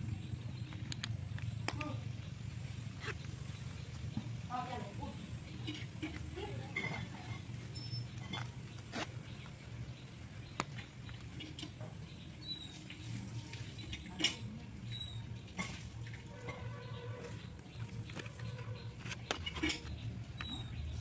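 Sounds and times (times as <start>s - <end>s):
low steady hum: 0.0s - 21.0s
sharp clicks: 0.6s - 2.0s.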